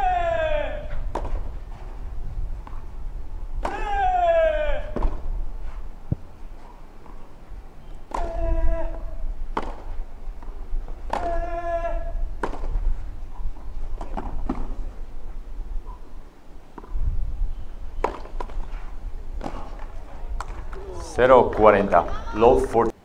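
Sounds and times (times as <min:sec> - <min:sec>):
person shouting: 0:00.0 - 0:01.0, 0:03.6 - 0:05.0, 0:08.1 - 0:09.3, 0:11.1 - 0:12.3, 0:20.8 - 0:22.8
steady low rumble: 0:00.8 - 0:21.6
sharp knocks: 0:01.1 - 0:01.5, 0:08.1 - 0:09.9, 0:12.4 - 0:12.8.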